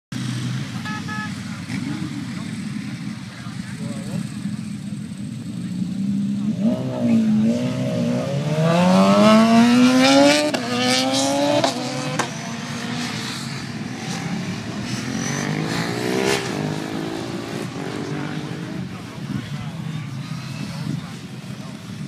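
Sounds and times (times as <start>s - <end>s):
motorcycle engine revving: 0.1s - 22.0s
second motorcycle revving: 0.1s - 22.0s.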